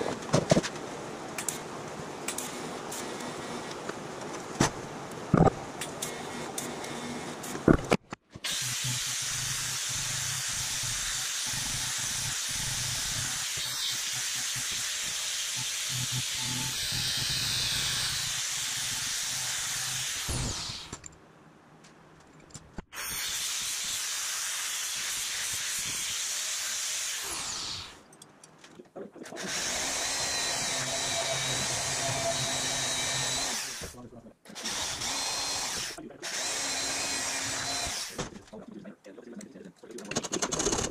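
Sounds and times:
angle grinder grinding metal: 8.5s - 21.0s.

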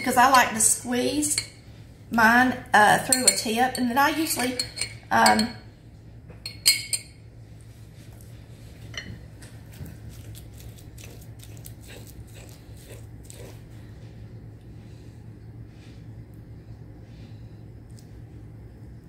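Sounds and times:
fork mashing and stirring: 3.1s - 5.6s, 8.8s - 14.0s
spoon clinking on glass jar: 3.1s - 5.6s, 6.4s - 7.2s.

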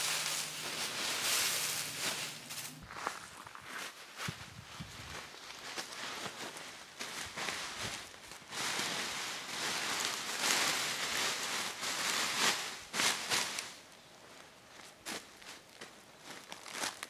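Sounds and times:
plastic bag crinkling: 0.0s - 3.4s, 5.4s - 13.8s.

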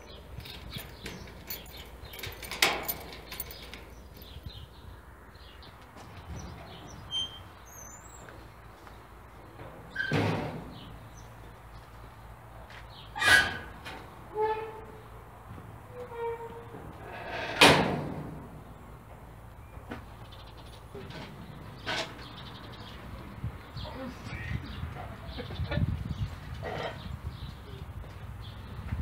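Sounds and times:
metal garage door clanking: 0.4s - 4.4s, 9.6s - 11.0s, 13.2s - 15.1s, 15.9s - 18.8s
keys jingling: 0.4s - 4.6s.

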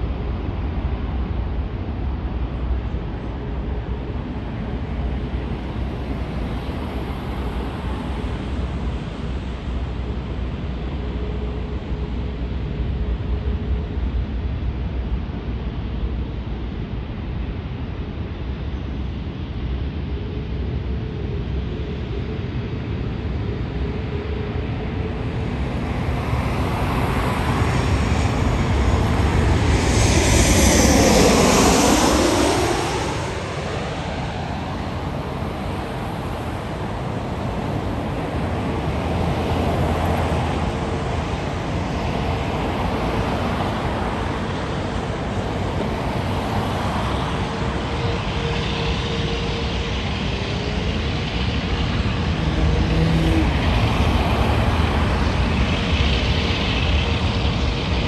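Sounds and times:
faint engine whine: 0.0s - 58.0s
jet engines rumbling: 0.0s - 58.0s
something passing close by: 27.9s - 35.7s.

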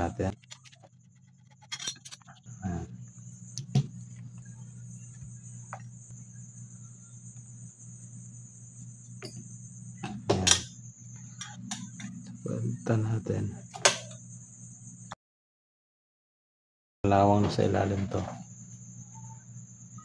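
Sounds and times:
faint high whine: 0.0s - 15.2s, 17.0s - 20.0s
steady low hum: 0.0s - 15.2s.

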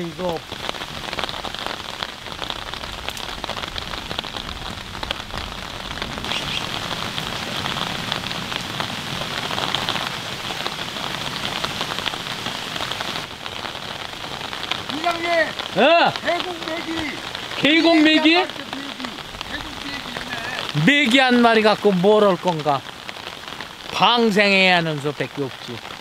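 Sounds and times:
rain falling on stream: 0.0s - 26.0s.

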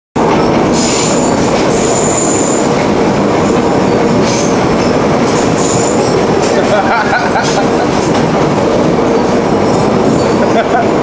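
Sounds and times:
train car rattling and rumbling: 0.2s - 11.0s
high wheel squeal: 0.4s - 2.8s, 3.8s - 6.5s, 9.0s - 10.6s.

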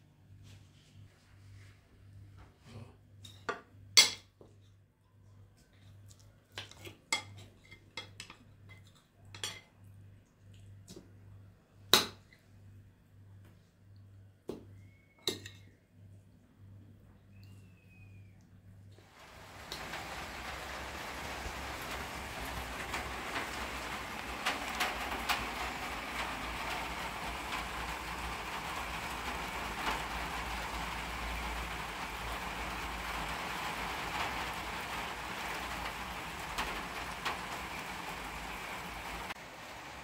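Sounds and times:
steady rain falling: 19.0s - 40.0s.

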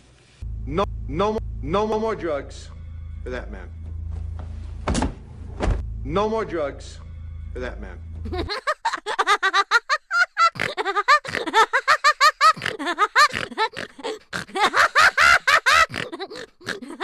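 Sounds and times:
high-pitched laughter: 8.3s - 17.0s.

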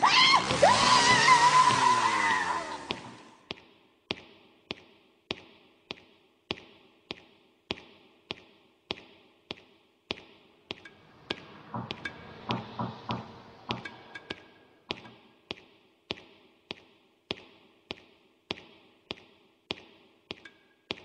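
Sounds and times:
echoing footsteps: 2.8s - 21.0s
low sounds: 10.7s - 15.5s.

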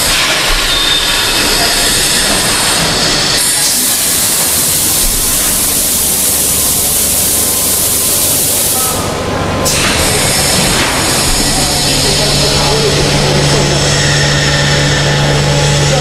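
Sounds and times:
loud hiss: 0.0s - 12.7s
low mechanical machine noise: 0.0s - 16.0s.

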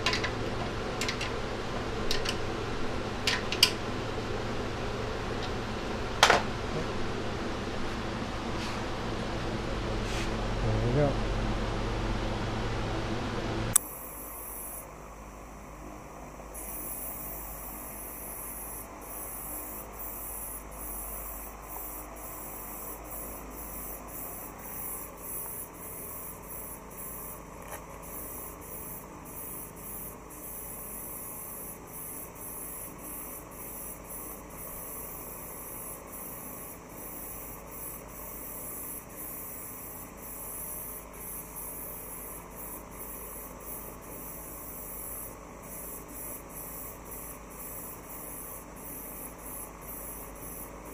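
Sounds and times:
paint spray gun hissing: 13.7s - 50.9s.

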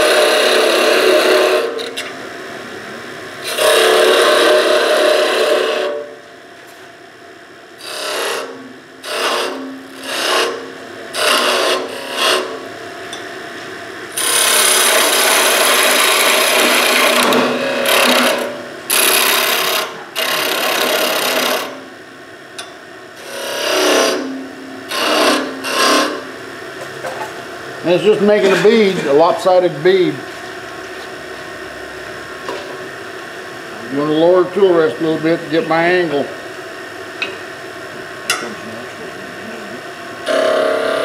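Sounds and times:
chisel cutting spinning wood: 0.0s - 2.0s, 3.4s - 6.1s, 7.8s - 12.7s, 14.1s - 21.8s, 23.2s - 26.3s, 27.8s - 30.0s, 40.2s - 41.0s.

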